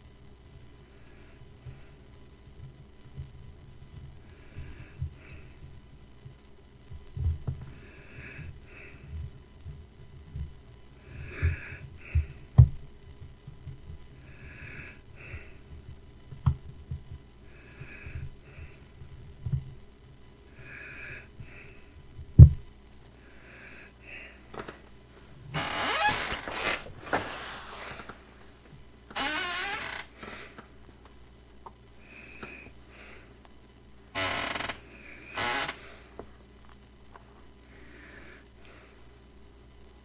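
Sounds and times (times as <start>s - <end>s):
rushing burst of noise: 25.6s - 28.6s.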